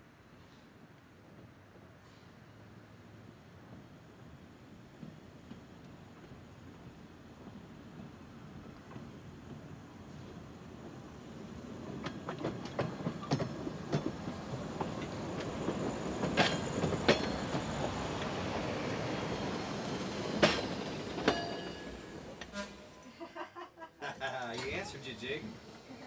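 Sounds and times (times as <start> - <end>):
train car rumbling: 1.2 - 26.0
wheels clacking over rail joints: 11.6 - 22.8.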